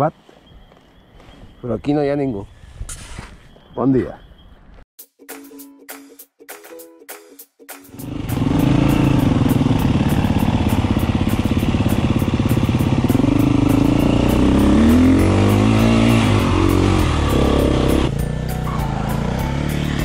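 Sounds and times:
dirt bike engine revving: 8.0 - 20.0.

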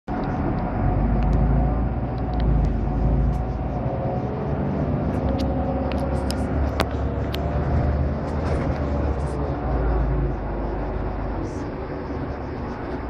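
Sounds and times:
sharp clicks: 0.1 - 3.6
bus engine rumbling: 0.1 - 13.0.

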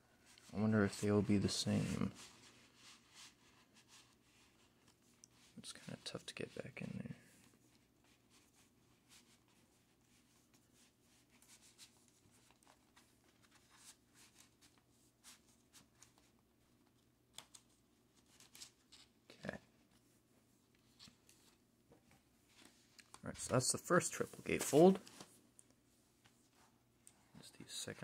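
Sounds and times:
cardboard rustling and sliding: 24.2 - 25.4.

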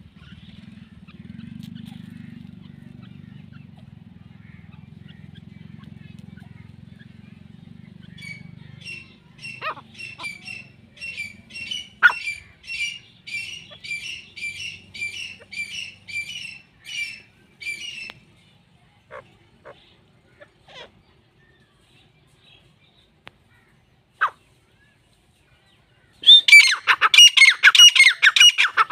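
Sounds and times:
francolin shrill repeated calls: 8.0 - 18.1, 26.2 - 28.9.

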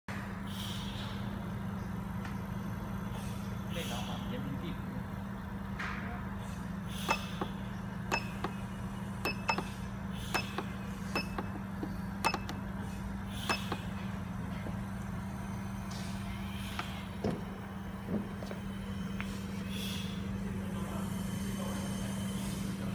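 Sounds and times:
compressor humming: 0.1 - 22.9
button clicks with beeps: 7.1 - 8.6, 9.2 - 12.6, 13.4 - 13.9.

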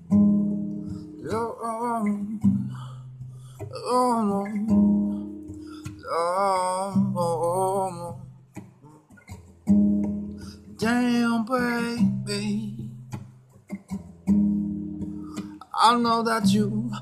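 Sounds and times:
acoustic guitar strumming: 0.0 - 17.0
man singing: 1.2 - 3.0, 3.7 - 8.3, 10.6 - 13.1, 15.4 - 17.0.

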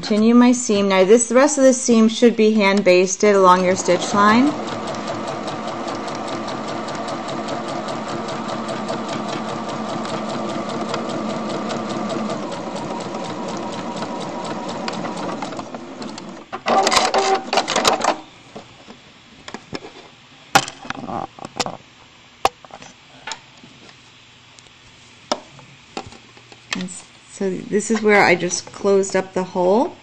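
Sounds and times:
sewing machine stitching: 3.6 - 18.1.

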